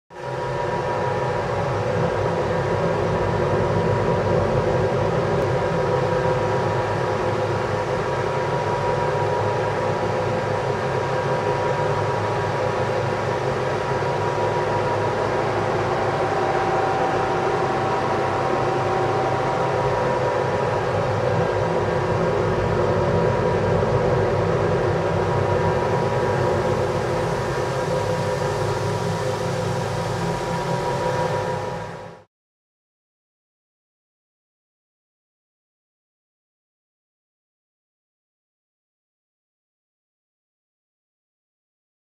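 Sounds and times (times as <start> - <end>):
mechanical drone with held tones: 0.2 - 32.3.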